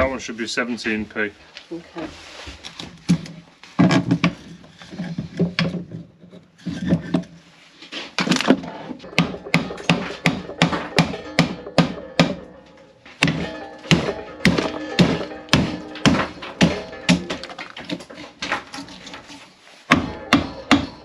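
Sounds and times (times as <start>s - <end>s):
wood cracking: 8.2s - 20.9s
hammer blows on wood: 9.0s - 12.5s, 13.2s - 17.6s, 19.9s - 21.0s.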